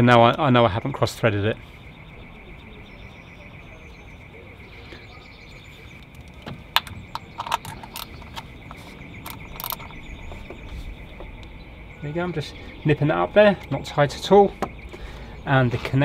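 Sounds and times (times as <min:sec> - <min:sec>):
socket and ratchet clinking: 0:06.2 - 0:10.2.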